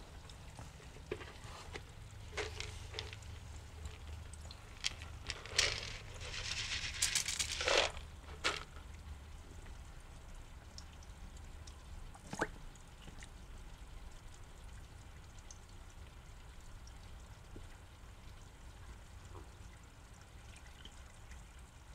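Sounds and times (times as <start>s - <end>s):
ticks and small splashes: 0.0s - 21.9s
pellets pattering on water: 2.2s - 9.0s.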